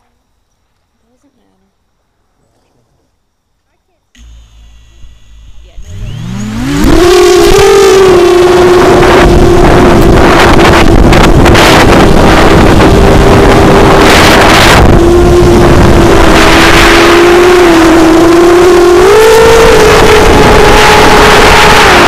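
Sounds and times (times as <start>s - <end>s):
quadcopter motors whining: 4.2s - 22.0s
wind buffeting microphone: 5.8s - 22.0s.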